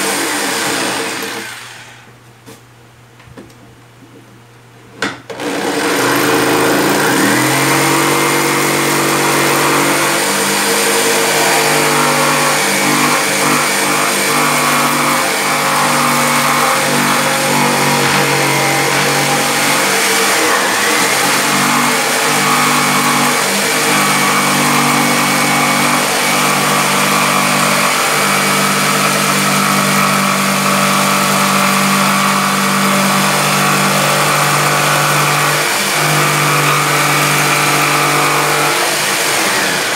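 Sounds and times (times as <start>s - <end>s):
jigsaw cutting wood: 0.0s - 2.1s, 5.3s - 39.9s.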